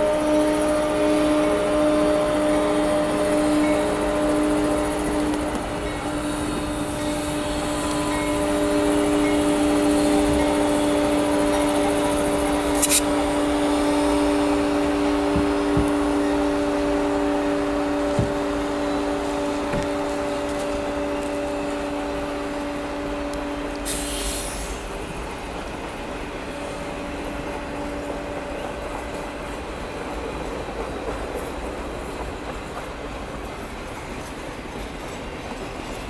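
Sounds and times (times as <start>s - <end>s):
diesel locomotives passing: 0.0s - 36.0s
brief hiss: 12.7s - 13.1s, 23.8s - 24.9s.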